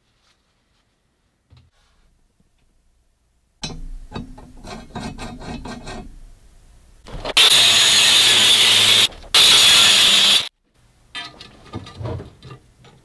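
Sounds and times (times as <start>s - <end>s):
angle grinder cutting steel: 7.3s - 10.5s.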